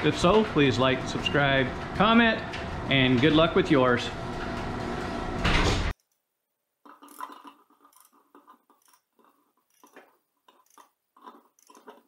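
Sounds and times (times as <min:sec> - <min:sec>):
ratchet wrench clicking: 0:09.7 - 0:10.9, 0:11.5 - 0:12.0.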